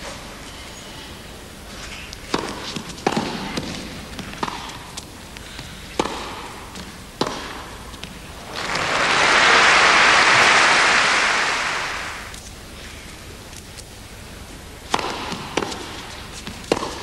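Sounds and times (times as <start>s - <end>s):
racquet striking tennis ball: 2.3s - 5.0s, 6.0s - 7.8s, 14.9s - 17.0s
crowd applauding: 8.4s - 12.3s.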